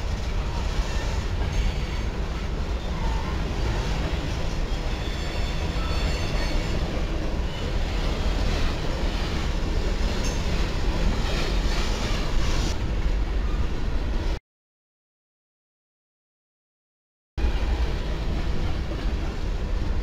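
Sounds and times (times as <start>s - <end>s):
train wheels rumbling on rails: 0.0s - 14.4s, 17.4s - 20.0s
wheel squeals: 4.3s - 8.7s.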